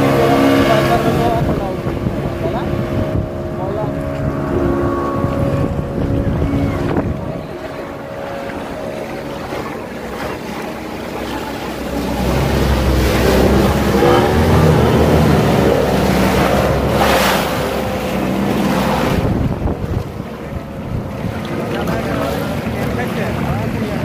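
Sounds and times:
boat wake splashing against walls: 0:00.0 - 0:24.0
speedboat engine passing: 0:00.0 - 0:24.0.

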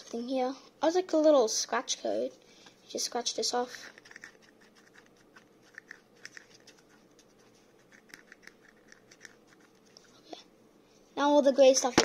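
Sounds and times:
fingernail scratching card: 0:03.9 - 0:10.0.

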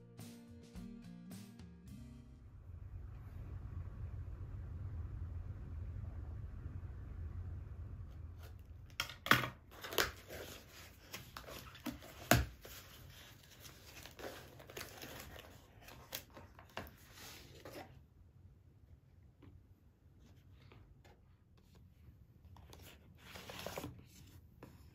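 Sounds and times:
cardboard rustling and crinkling: 0:08.4 - 0:18.0, 0:20.3 - 0:24.9.

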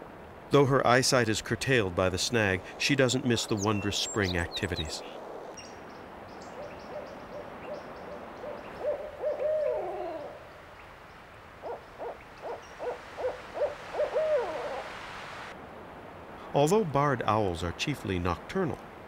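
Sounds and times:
owl hooting: 0:06.4 - 0:10.4, 0:11.6 - 0:15.5.

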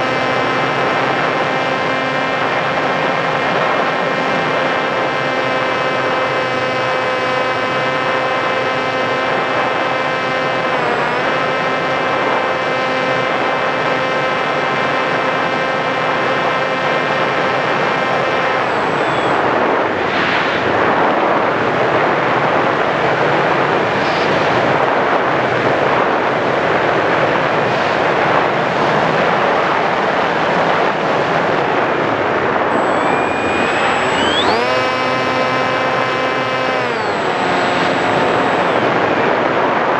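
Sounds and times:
electric motor and propeller whine: 0:00.0 - 0:22.0, 0:30.4 - 0:39.9
rush of wind: 0:18.5 - 0:39.9.

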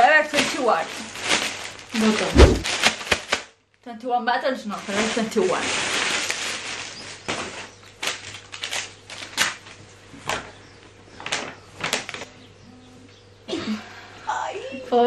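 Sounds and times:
plastic bag crinkling: 0:00.0 - 0:03.5, 0:04.7 - 0:09.8.

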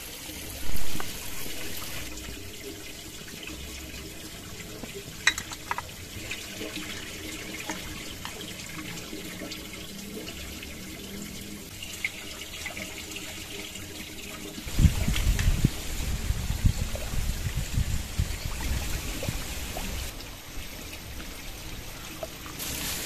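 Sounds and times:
cookware clicking on pot: 0:05.2 - 0:05.9.

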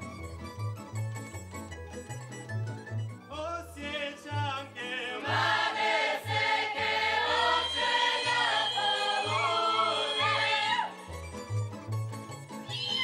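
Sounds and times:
string band playing: 0:00.0 - 0:13.0
choir singing folk song: 0:03.8 - 0:11.2.

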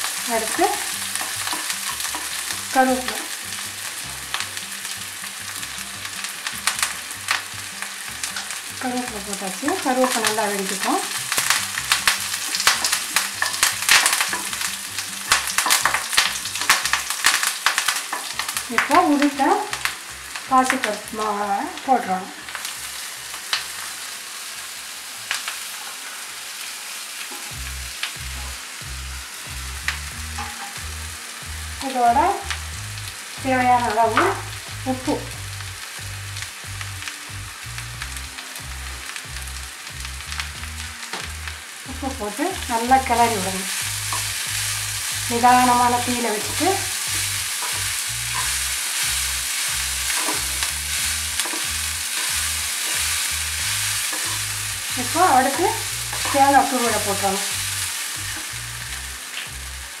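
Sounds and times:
spatula scraping a pan: 0:00.0 - 0:02.9, 0:43.7 - 0:57.2
oil sizzling in a pan: 0:00.0 - 1:00.0
steel spoon clinking: 0:50.0 - 0:53.4, 0:54.0 - 0:54.6.

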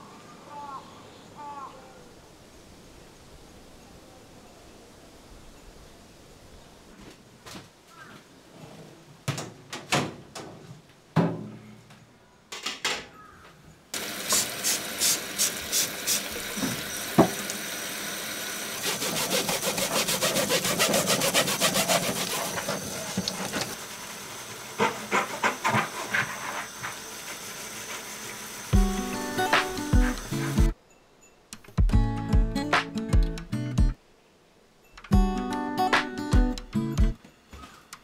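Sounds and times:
tap water running into sink: 0:14.0 - 0:30.7
scrubbing a soapy surface: 0:18.8 - 0:23.8, 0:24.8 - 0:28.2.

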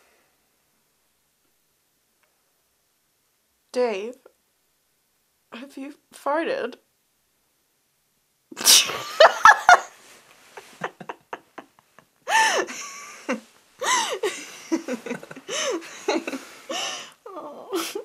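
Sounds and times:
man and woman laughing: 0:08.8 - 0:16.7.

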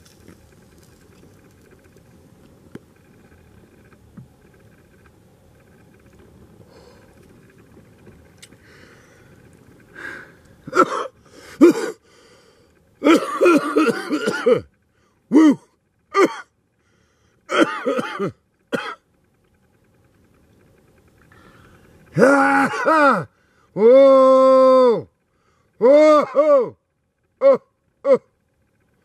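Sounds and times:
man coughing hard: 0:10.7 - 0:12.0, 0:13.0 - 0:14.7, 0:15.3 - 0:15.6, 0:16.2 - 0:16.5, 0:17.5 - 0:19.0.

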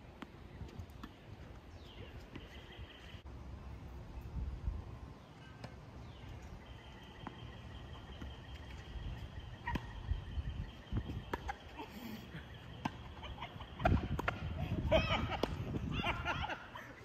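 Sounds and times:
racket hitting tennis ball: 0:13.8 - 0:14.5.

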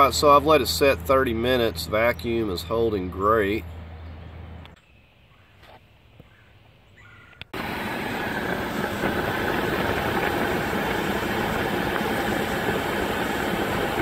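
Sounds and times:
air blowing from vent: 0:07.6 - 0:14.0
car engine idling: 0:07.6 - 0:14.0.

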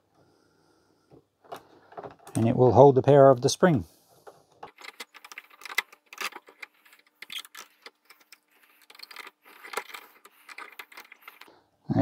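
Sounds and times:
small metallic clicks: 0:04.2 - 0:11.5.

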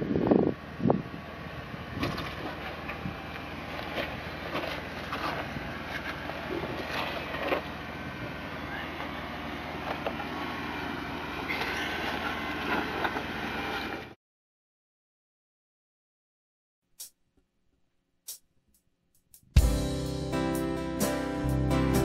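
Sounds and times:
car engine running low: 0:00.0 - 0:14.2.

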